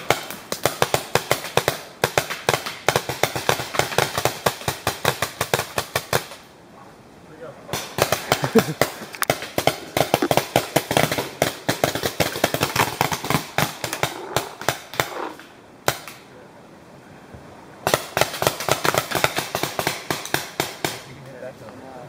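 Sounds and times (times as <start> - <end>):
paintball markers firing: 7.7 - 16.2, 17.9 - 21.1.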